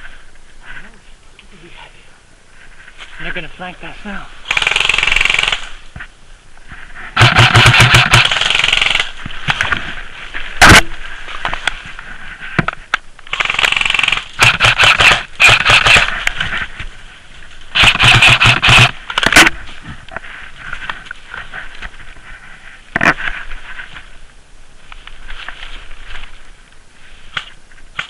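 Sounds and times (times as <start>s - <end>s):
airsoft rifles firing bursts: 4.4s - 5.8s, 7.2s - 9.2s, 10.6s - 11.0s, 13.3s - 16.2s, 17.7s - 19.6s
sharp loud crack: 10.6s - 11.0s.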